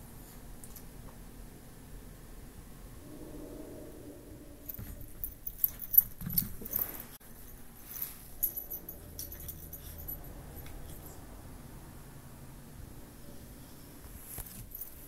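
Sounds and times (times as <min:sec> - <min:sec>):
jingling clicks and scuffles: 0:04.8 - 0:11.2, 0:14.4 - 0:15.0.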